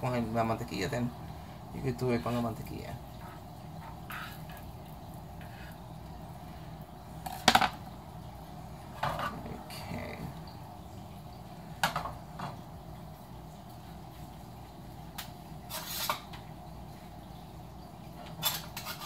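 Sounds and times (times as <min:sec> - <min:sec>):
low steady hum: 0:00.0 - 0:19.0
frying pan knocking on stove grate: 0:07.2 - 0:07.8, 0:11.8 - 0:12.6.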